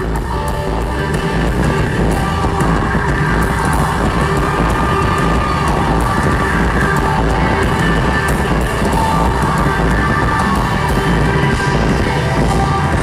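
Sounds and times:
electric guitar: 0.0 - 13.0
loud rock band playing: 0.0 - 13.0.

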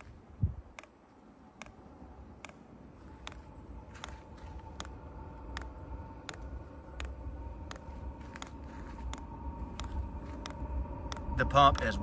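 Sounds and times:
heater whine: 0.0 - 12.0.

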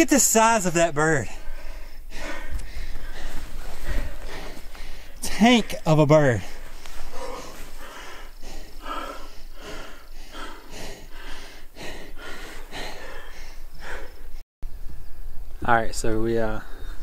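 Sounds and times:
man breathing hard and fast: 1.2 - 14.4.

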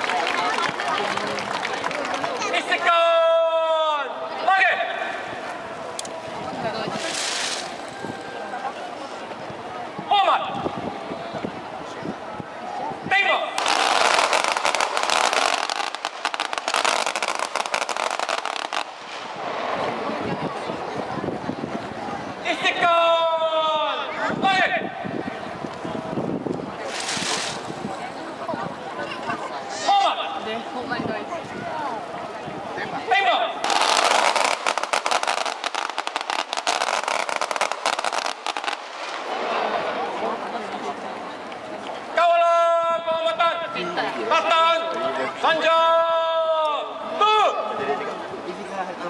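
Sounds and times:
rifles firing rippling volley: 6.8 - 8.0, 13.6 - 19.8, 33.6 - 39.8.

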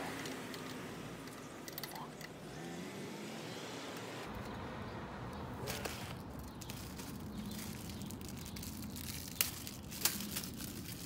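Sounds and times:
plastic packaging crinkling: 5.6 - 11.0.

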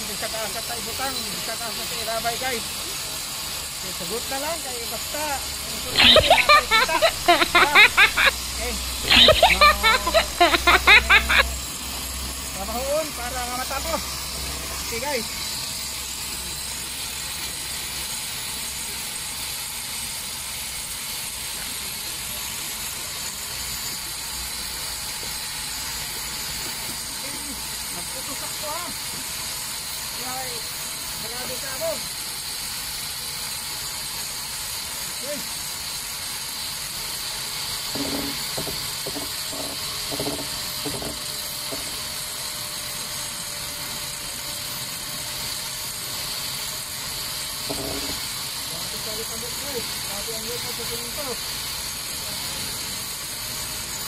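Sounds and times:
construction machine noise: 0.0 - 54.0.

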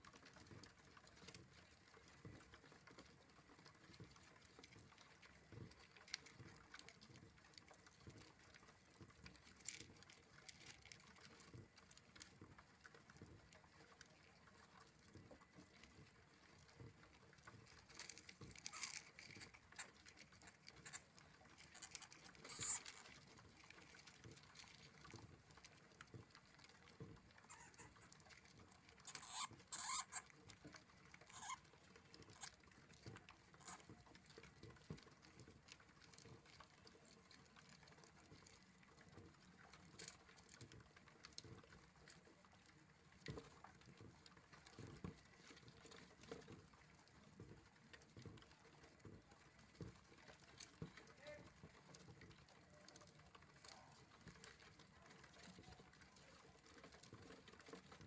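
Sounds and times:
hamster feet scrabbling on plastic: 14.8 - 41.8.

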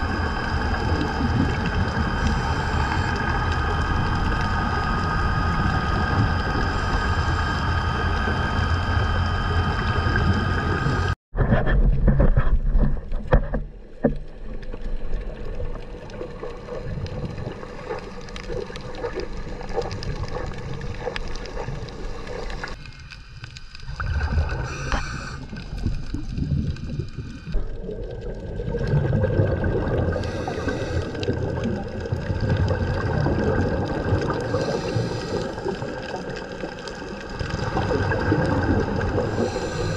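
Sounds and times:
underwater boat motor hum: 0.0 - 11.2, 23.5 - 39.9
rushing gurgling water and bubbles: 0.0 - 39.9.

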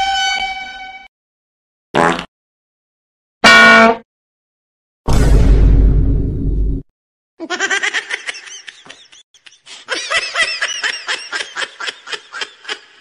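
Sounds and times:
high-pitched cackling laugh: 7.4 - 13.0.

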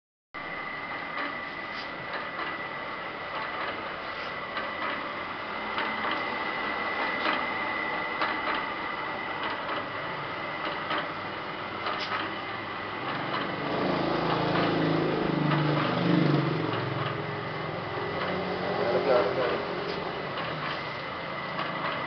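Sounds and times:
machine high whine: 0.4 - 22.0
machine clicks and knocks: 3.3 - 7.5, 8.2 - 8.7, 9.3 - 22.0.

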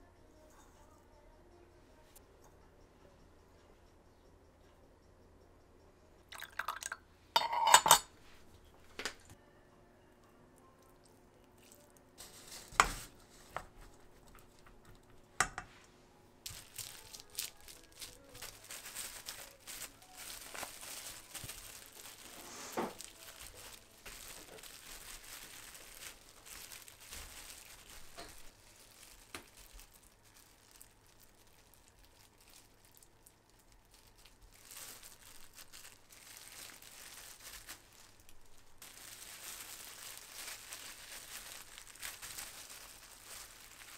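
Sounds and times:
plastic gloves crinkling: 11.1 - 15.4, 16.4 - 43.9.

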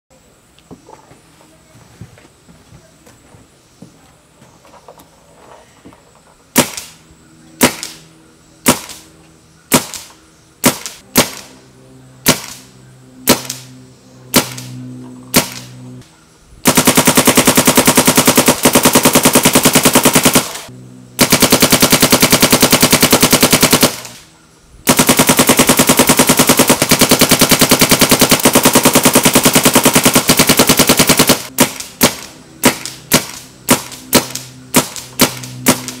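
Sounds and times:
paintball marker firing: 7.6 - 8.0, 8.6 - 9.1, 9.7 - 11.5, 14.3 - 15.7, 24.9 - 36.0.

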